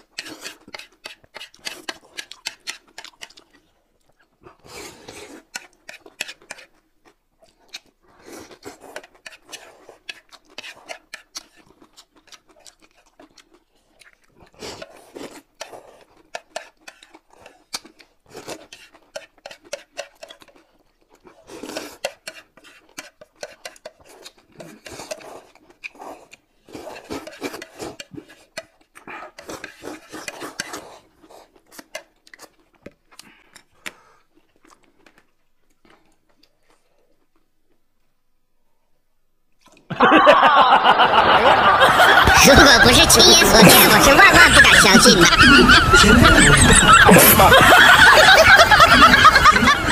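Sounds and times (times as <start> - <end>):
people slurping noodles: 0.0 - 3.6, 4.4 - 6.8, 7.5 - 32.6, 39.7 - 49.9.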